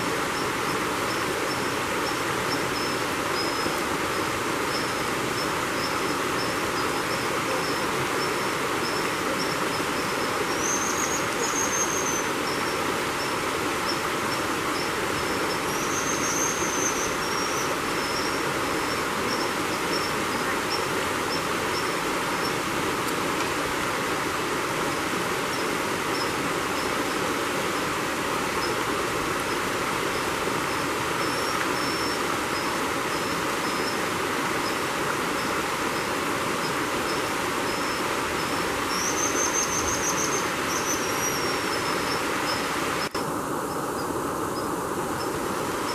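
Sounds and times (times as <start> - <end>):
creek rushing over rocks: 0.0 - 45.9.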